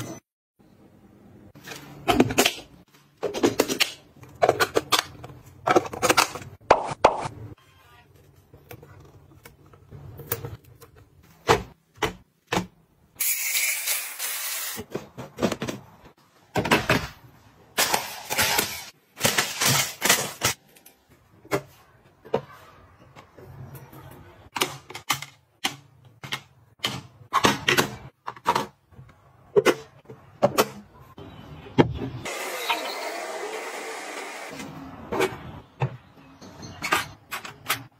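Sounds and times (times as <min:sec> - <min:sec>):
plastic containers clicking and rattling: 0:02.0 - 0:06.9.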